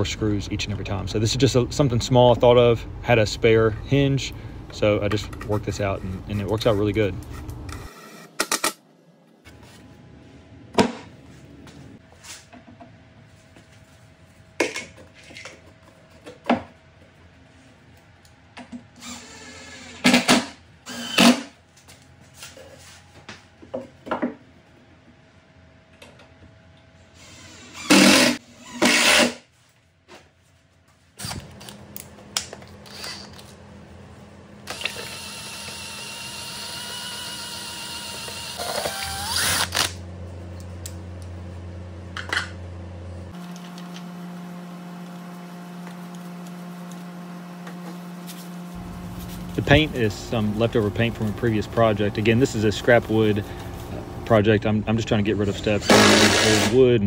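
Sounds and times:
cordless drill bursts: 0:20.9 - 0:21.4, 0:34.7 - 0:40.0, 0:55.8 - 0:56.8
drill spinning paint-mixing paddle: 0:34.6 - 0:39.9, 0:55.6 - 0:56.8.

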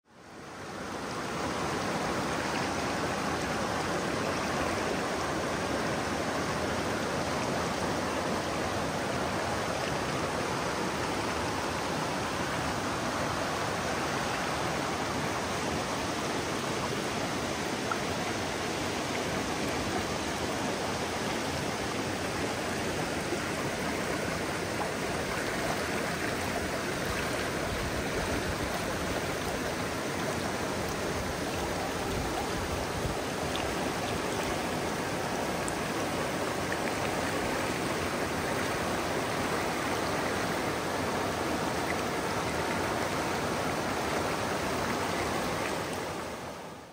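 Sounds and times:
river rushing over rocks: 0:00.1 - 0:46.9.

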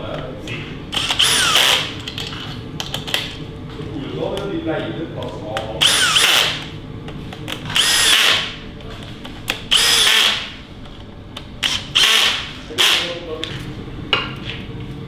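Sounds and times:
cordless drill whining: 0:01.0 - 0:02.0, 0:05.8 - 0:06.6, 0:07.7 - 0:08.5, 0:09.7 - 0:10.5, 0:11.6 - 0:13.0.

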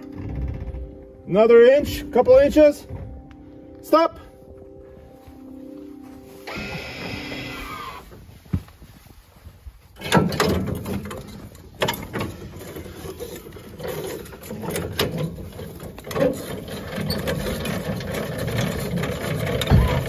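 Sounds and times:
metal clanks: 0:10.0 - 0:20.0.

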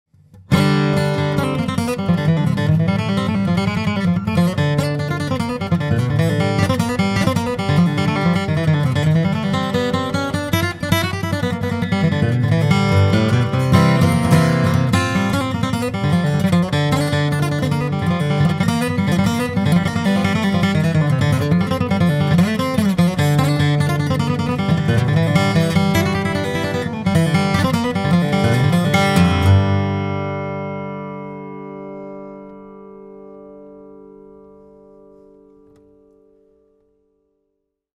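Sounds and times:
acoustic guitar flatpicking: 0:00.1 - 0:37.1.

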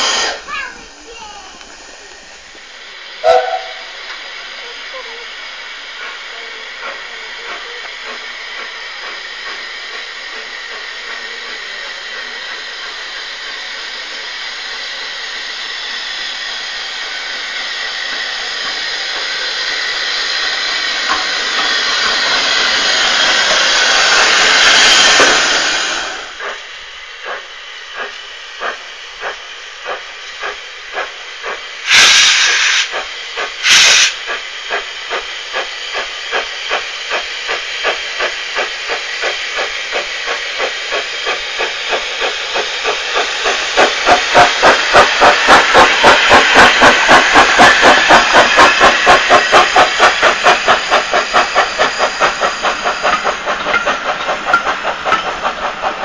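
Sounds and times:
steam locomotive hissing: 0:00.0 - 0:56.0
locomotive exhaust chuffs: 0:15.6 - 0:56.0.

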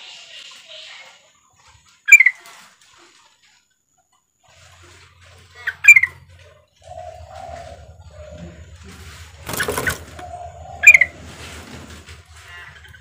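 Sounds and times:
bird chirpy calls: 0:02.1 - 0:02.4, 0:05.5 - 0:13.0.

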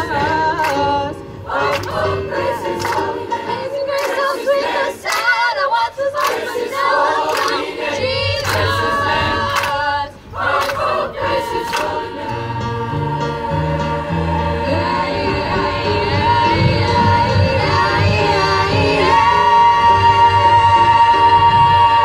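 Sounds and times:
choir singing gospel: 0:00.0 - 0:22.0
keyboard bass notes: 0:11.4 - 0:22.0.

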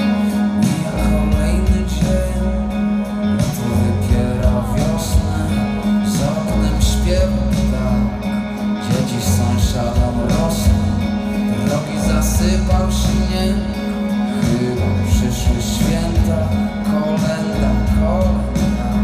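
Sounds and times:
live rock band: 0:00.0 - 0:19.0
vocalist singing: 0:00.0 - 0:19.0.

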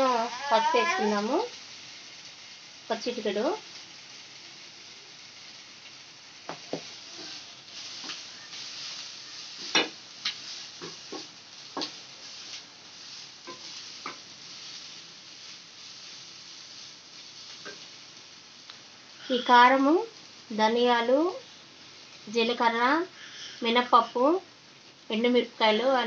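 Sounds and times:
greens sizzling in oil: 0:00.0 - 0:26.0
wooden spatula knocking and scraping pan: 0:06.5 - 0:08.4, 0:09.6 - 0:12.0, 0:13.4 - 0:14.3.

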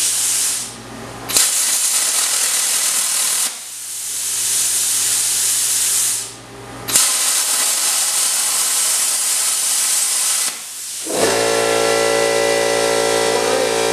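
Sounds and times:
plasma cutter hissing: 0:00.0 - 0:00.7, 0:01.3 - 0:13.9
machine hum with high whine: 0:10.8 - 0:13.9.

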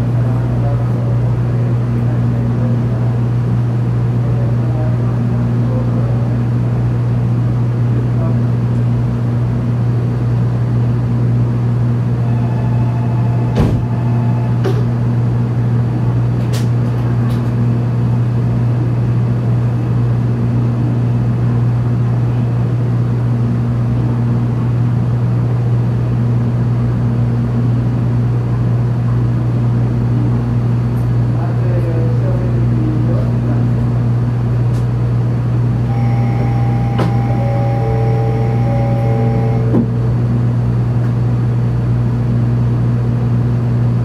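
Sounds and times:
low hum of train equipment: 0:00.0 - 0:44.0.

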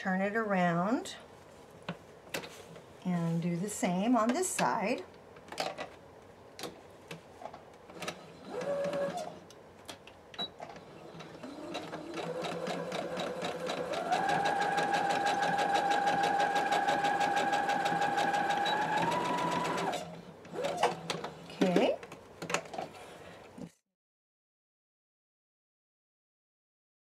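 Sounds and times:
sewing machine stitching: 0:07.9 - 0:09.4, 0:10.8 - 0:21.8.

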